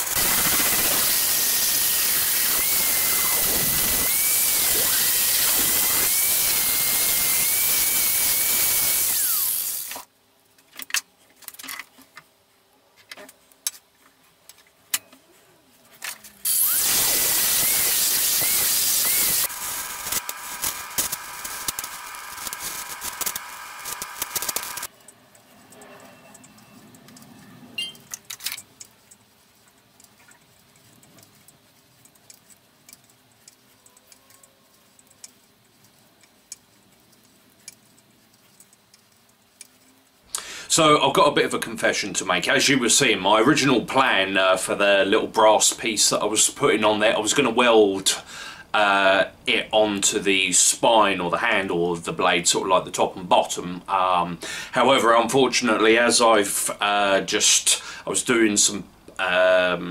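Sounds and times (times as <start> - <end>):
angle grinder grinding steel: 0.0 - 10.1, 16.4 - 24.9
welding arc hiss and buzz: 0.0 - 10.1, 16.4 - 24.9.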